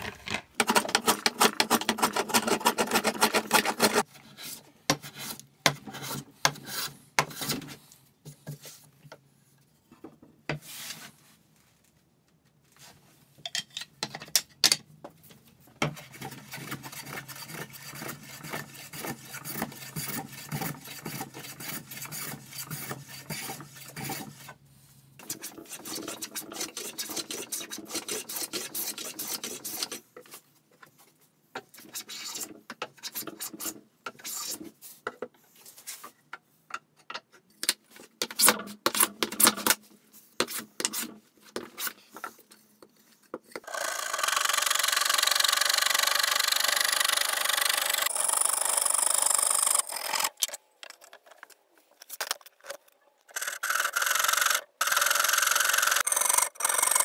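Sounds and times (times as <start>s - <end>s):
hand plane shaving wood: 0.6s - 4.0s, 15.9s - 24.5s, 25.2s - 30.0s.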